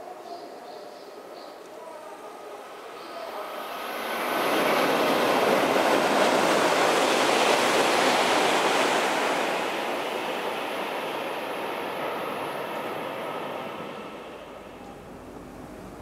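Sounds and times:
high-speed train passing: 2.1 - 16.0.

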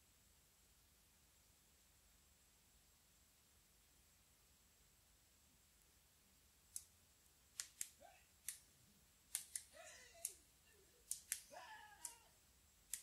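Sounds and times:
faint sharp clicks: 6.7 - 6.9, 7.6 - 8.7, 9.3 - 10.4, 11.0 - 12.2.

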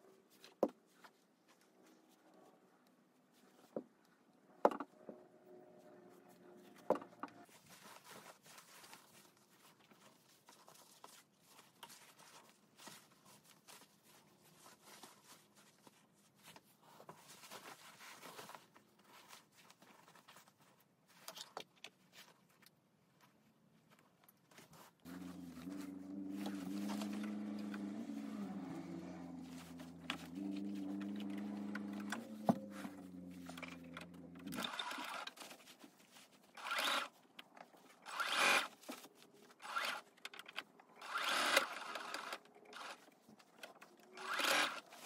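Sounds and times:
fabric rustling and crinkling: 6.5 - 39.8
sewing machine running: 36.6 - 37.1, 41.0 - 43.0, 44.2 - 44.8.

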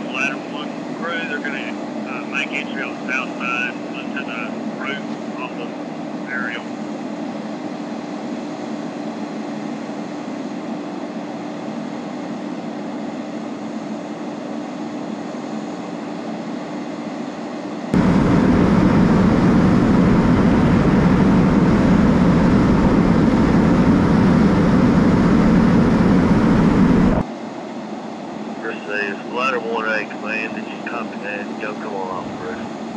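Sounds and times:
diesel engine rumbling: 18.0 - 27.2, 28.6 - 32.7.

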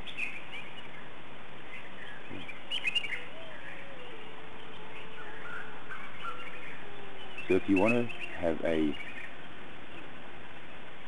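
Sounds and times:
small birds chirping: 0.0 - 11.0
steady background hiss: 0.0 - 11.0.

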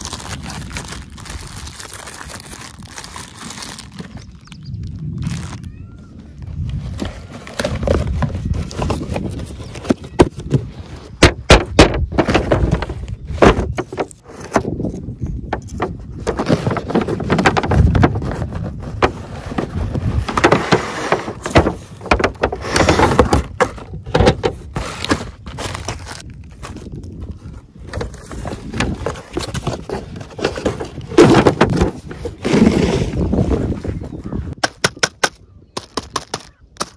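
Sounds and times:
cardboard boxes being handled: 0.0 - 4.5, 6.5 - 34.1
plastic wrapping crinkling: 0.0 - 5.8.

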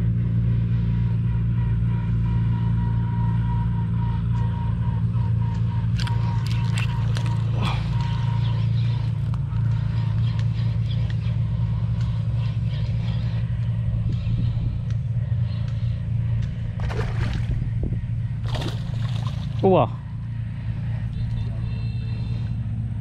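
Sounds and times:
low engine drone: 0.0 - 23.0.

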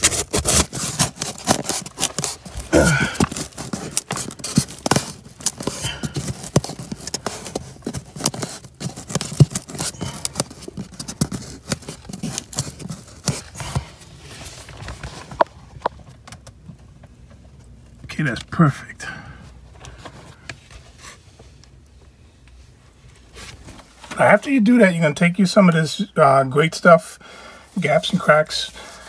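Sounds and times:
foam board scraping and rubbing: 0.0 - 15.3.

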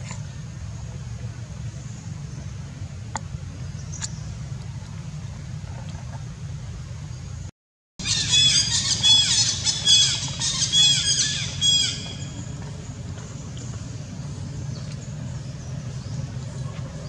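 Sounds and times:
steady low hum: 0.0 - 17.0
high-pitched squealing animal calls: 8.0 - 12.2.

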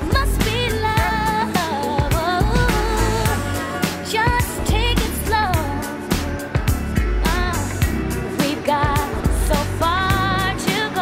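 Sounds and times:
pop music with steady beat: 0.0 - 11.0.

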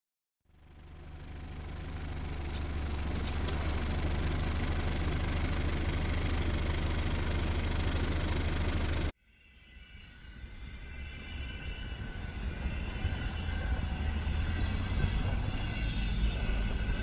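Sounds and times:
diesel engine knocking clatter: 0.5 - 9.1.

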